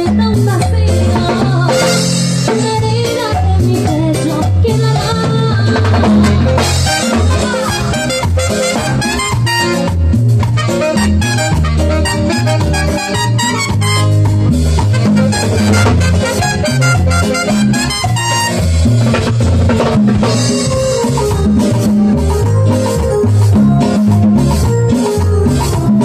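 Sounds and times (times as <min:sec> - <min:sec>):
bass line: 0:00.0 - 0:26.0
drums and hand percussion: 0:00.0 - 0:26.0
keyboard: 0:00.0 - 0:26.0
latin dance band playing: 0:00.0 - 0:26.0.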